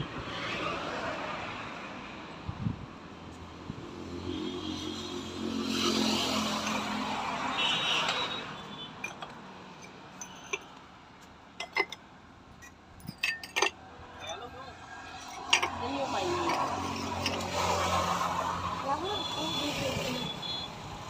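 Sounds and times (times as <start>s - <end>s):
vehicle passing by: 3.6s - 8.1s, 14.7s - 20.2s
ceramic pots clinking: 6.5s - 7.0s, 9.0s - 10.8s, 11.6s - 12.0s, 12.6s - 14.5s, 15.1s - 17.6s.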